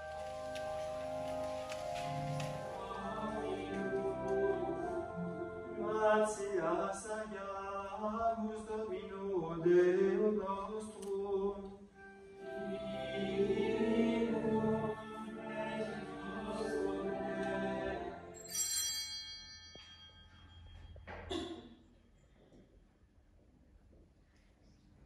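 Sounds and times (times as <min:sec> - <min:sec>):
choir singing held notes: 0:00.0 - 0:07.0, 0:12.0 - 0:18.5
high ringing sound: 0:18.4 - 0:21.1.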